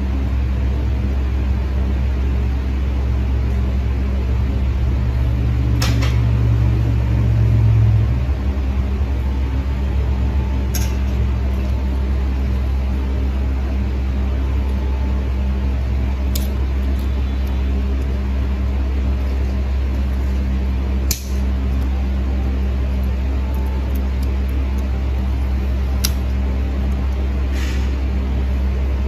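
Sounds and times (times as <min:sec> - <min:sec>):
low mechanical hum: 0:00.0 - 0:29.0
nail nippers clicking: 0:16.3 - 0:17.6, 0:26.0 - 0:26.4.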